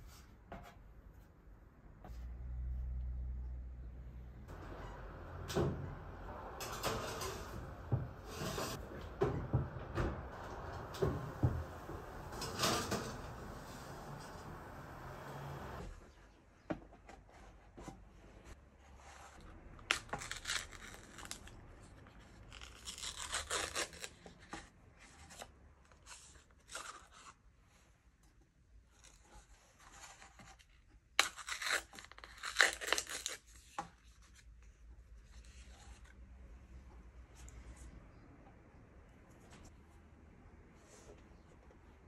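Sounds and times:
paper tearing and crinkling: 19.8 - 24.7, 29.0 - 33.7.

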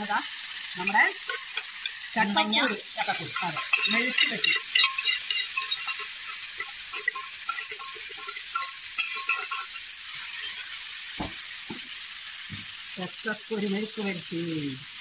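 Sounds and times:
pan being stirred: 0.0 - 12.0
oil sizzling and crackling in pan: 0.0 - 15.0.

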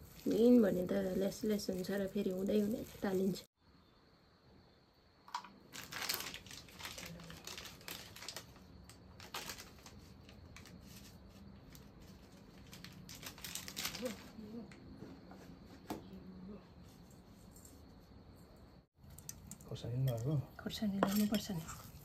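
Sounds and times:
wrappings crinkling and rustling: 0.0 - 3.5, 5.7 - 14.4.

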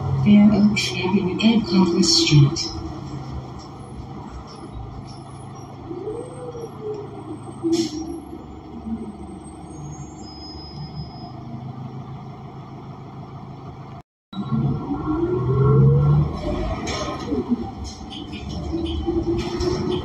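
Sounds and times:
bus engine drone: 0.0 - 20.0.

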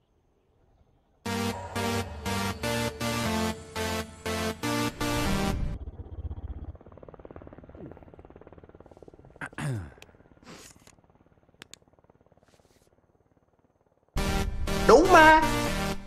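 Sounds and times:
fluttering synthesizer rumble: 1.3 - 9.4.

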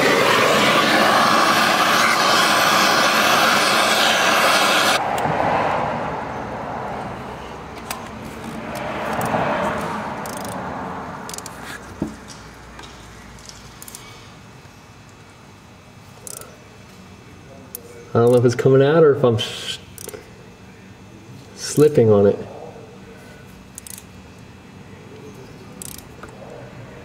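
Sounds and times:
torch roaring: 0.0 - 6.2
ratchet clicks and knocks: 10.2 - 10.6, 11.3 - 11.6, 16.2 - 16.5, 20.0 - 20.2, 23.7 - 24.1, 25.8 - 26.2.

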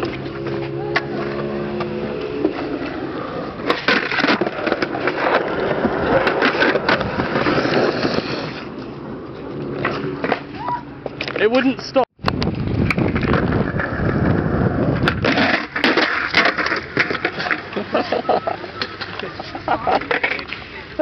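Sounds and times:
skateboard wheels rolling on concrete: 0.0 - 21.0
skateboard clacks: 9.6 - 20.6.

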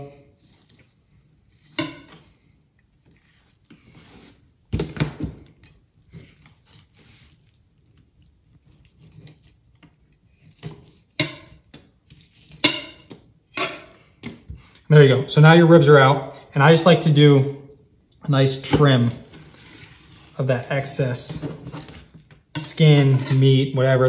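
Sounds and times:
knife slicing and scraping fish: 0.3 - 4.6, 5.5 - 14.0, 19.3 - 20.4.

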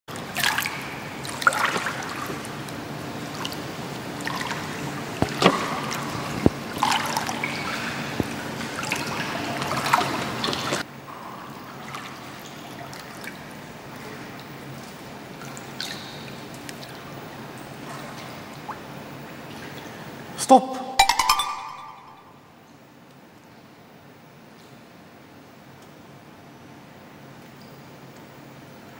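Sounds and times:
pool water sloshing and splashing: 0.1 - 20.4.

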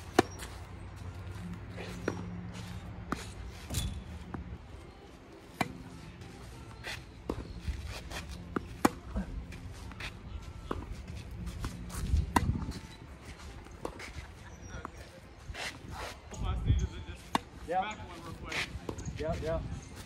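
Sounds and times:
rackets striking tennis ball: 0.0 - 4.6, 5.4 - 6.0, 6.8 - 12.9, 17.2 - 19.1
footsteps shuffling: 0.0 - 20.0.

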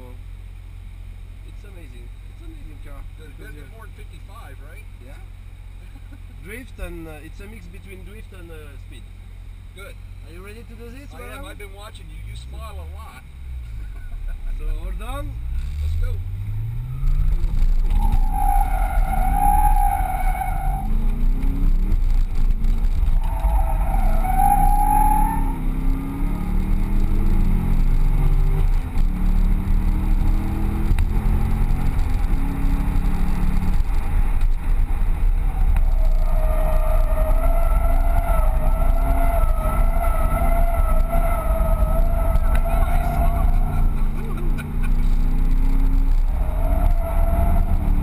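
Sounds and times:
car engine revving: 11.4 - 48.0
tyres squealing: 16.9 - 21.1, 23.0 - 26.1, 34.9 - 48.0.

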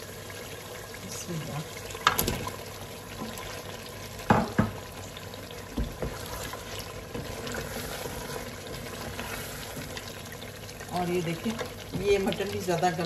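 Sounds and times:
meat sizzling in oil: 0.0 - 13.0.

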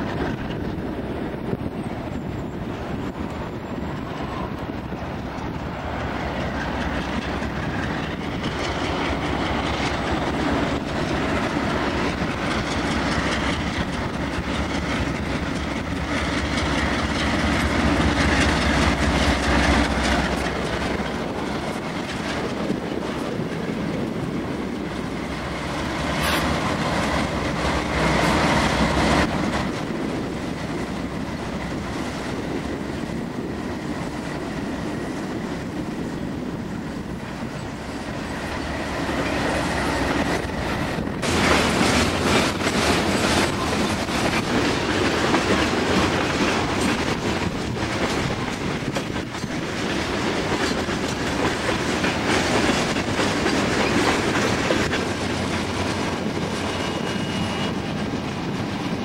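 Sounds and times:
freight cars rolling on rails: 0.0 - 59.0
freight train passing: 0.0 - 59.0
faint steady squeal: 56.5 - 58.1.

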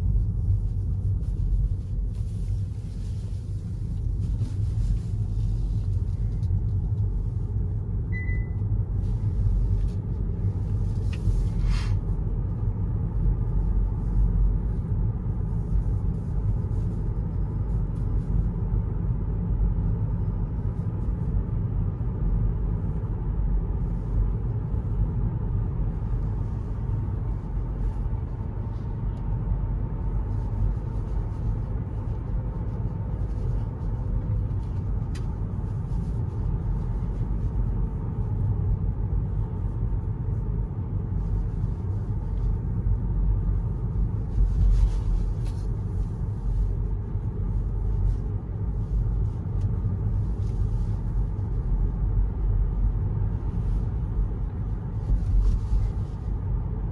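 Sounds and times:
tyre and road rumble: 0.0 - 56.9
faint steady tone: 8.0 - 8.8.

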